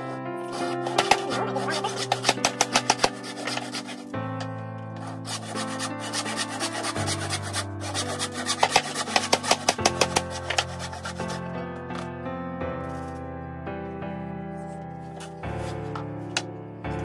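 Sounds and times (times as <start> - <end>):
background music of held chords: 0.0 - 17.0
hand saw cutting wood: 0.4 - 4.2, 5.0 - 12.0.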